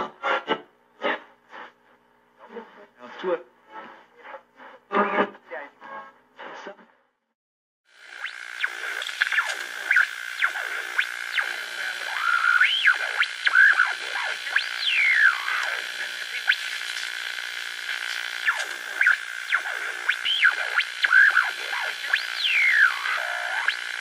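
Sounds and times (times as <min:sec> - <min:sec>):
whining drone: 0:08.0 - 0:24.0.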